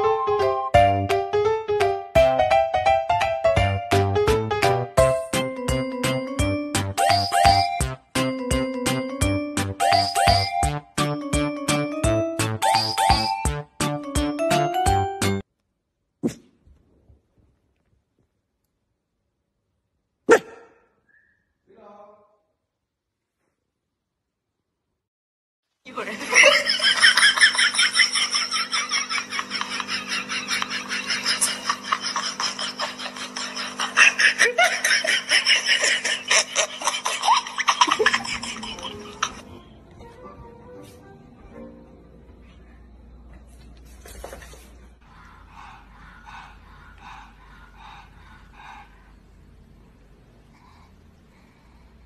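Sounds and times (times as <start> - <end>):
person laughing hard: 26.2 - 39.4.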